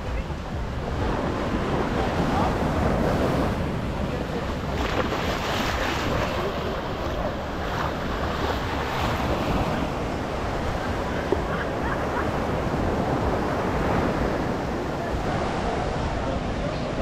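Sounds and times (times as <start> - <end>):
ocean surf washing onto beach: 0.0 - 17.0.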